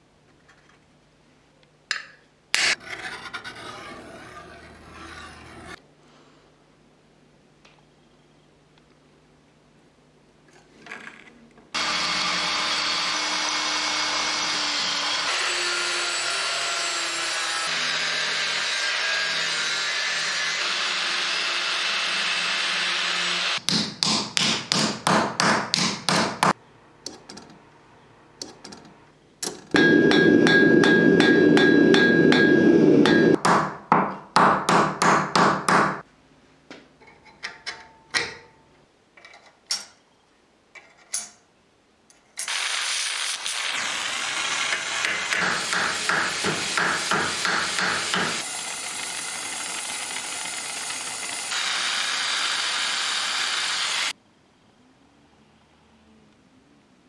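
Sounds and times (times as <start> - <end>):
angle grinder cutting steel: 11.8 - 23.6, 29.8 - 33.4, 42.4 - 54.1
power tool running: 11.8 - 23.6, 43.4 - 54.1
hammer blows on sheet steel: 29.8 - 36.0, 44.7 - 48.4.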